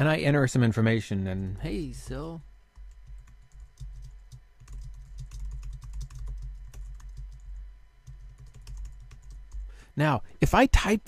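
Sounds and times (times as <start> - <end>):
computer keyboard typing: 2.8 - 9.7.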